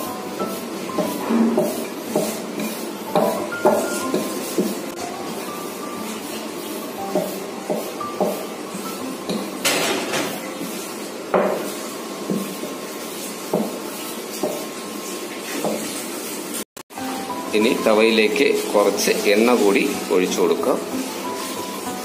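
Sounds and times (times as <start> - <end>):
rolling pin knocking on board: 1.0 - 2.4, 3.2 - 4.8, 7.1 - 8.4, 11.3 - 11.7, 13.5 - 13.8.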